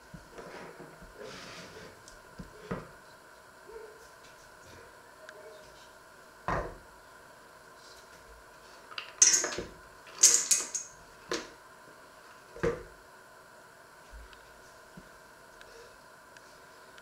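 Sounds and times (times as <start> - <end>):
pieces rattling in metal colander: 10.2 - 10.9.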